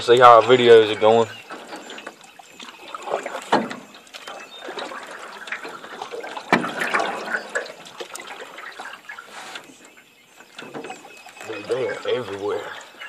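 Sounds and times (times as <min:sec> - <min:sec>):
sharp knocks on aluminium boat: 0:03.4 - 0:03.8.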